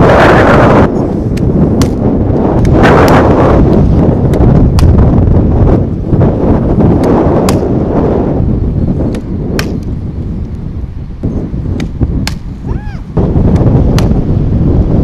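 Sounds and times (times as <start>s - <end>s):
wind buffeting microphone: 0.0s - 15.0s
bat striking ball: 9.1s - 9.8s.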